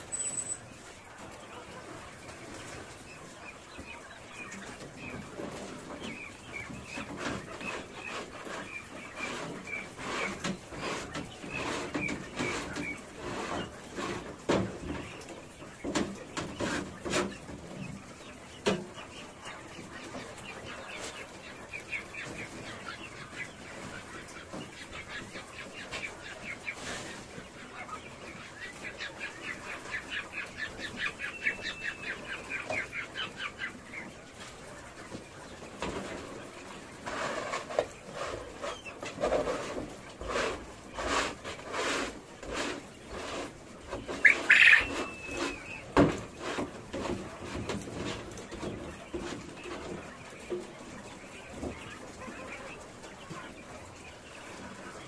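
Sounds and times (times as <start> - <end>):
quail chattering calls: 27.9 - 33.8, 43.9 - 45.9.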